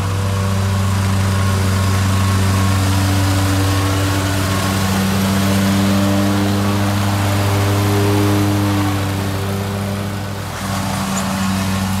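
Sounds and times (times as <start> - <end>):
lawn mower engine drone: 0.0 - 12.0.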